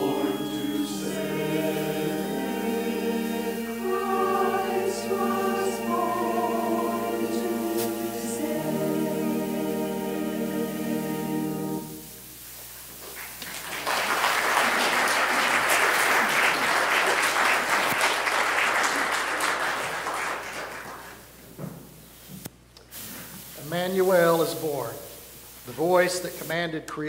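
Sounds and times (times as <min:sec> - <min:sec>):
congregation applauding: 0:00.0 - 0:08.6, 0:13.0 - 0:21.3
church choir singing: 0:00.0 - 0:12.3.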